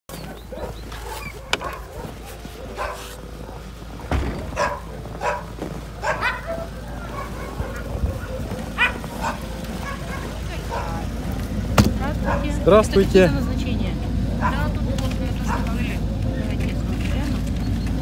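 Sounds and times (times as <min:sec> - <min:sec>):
dog yelping: 0:00.2 - 0:03.8, 0:04.4 - 0:11.1, 0:12.1 - 0:12.6, 0:14.3 - 0:14.8
steady low rumble: 0:01.9 - 0:17.8.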